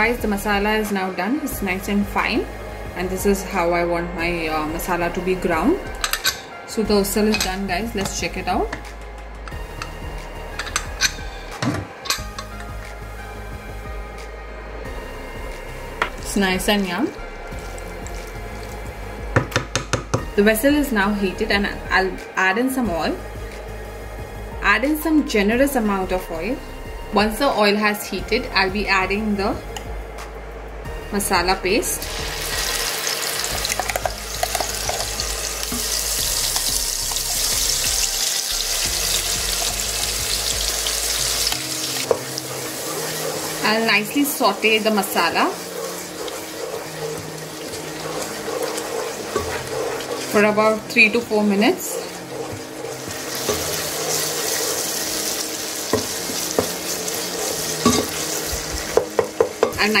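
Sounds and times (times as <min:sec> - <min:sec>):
paste sizzling in hot oil: 0:15.0 - 0:19.9, 0:32.0 - 1:00.0
wooden spatula knocking pot: 0:19.3 - 0:20.3, 0:44.6 - 0:55.3, 0:55.9 - 0:59.9.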